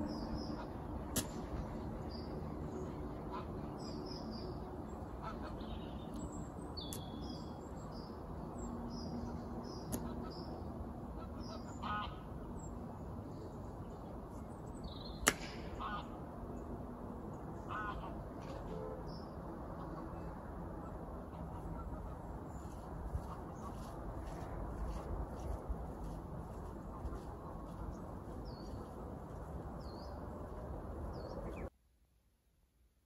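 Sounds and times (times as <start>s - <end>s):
steady background rumble: 0.0s - 31.7s
low honking bird calls: 8.9s - 12.7s, 15.2s - 16.3s, 17.6s - 25.0s
sharp click: 15.2s - 15.6s.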